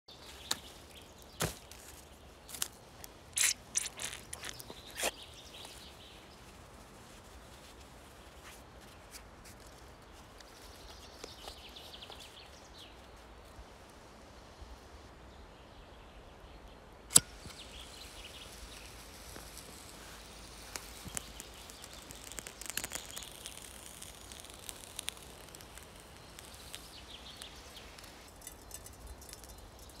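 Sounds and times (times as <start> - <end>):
light crackles: 0.2 - 15.1, 17.1 - 30.0
sharp click: 17.1 - 17.7.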